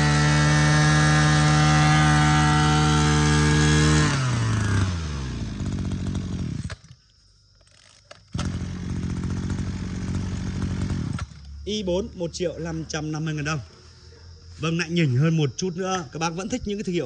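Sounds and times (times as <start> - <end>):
brush cutter engine revving and idling: 0.0 - 7.0, 7.8 - 12.9.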